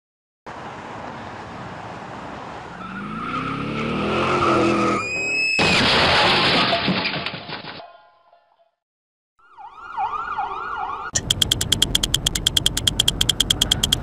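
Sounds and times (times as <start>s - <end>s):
tire squeal: 2.7s - 6.3s
loud crash and scraping: 5.5s - 7.8s
vehicle engine accelerating: 11.2s - 14.0s.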